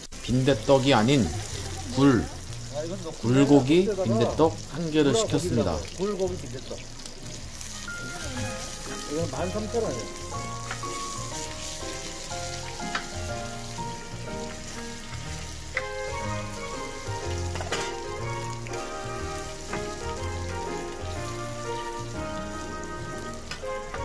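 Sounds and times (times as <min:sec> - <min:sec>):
background music: 0:00.0 - 0:24.0
pancakes sizzling in oil: 0:00.0 - 0:24.0.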